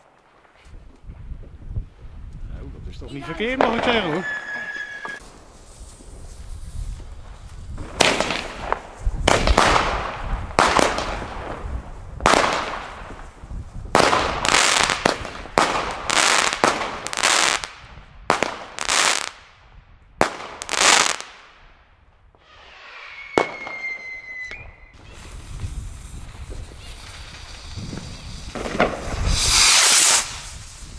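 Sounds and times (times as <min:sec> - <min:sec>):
fireworks cracking and crackling: 0:03.1 - 0:19.6, 0:20.2 - 0:21.7, 0:22.4 - 0:30.9
high steady whistling tone: 0:04.2 - 0:05.2, 0:22.5 - 0:25.3.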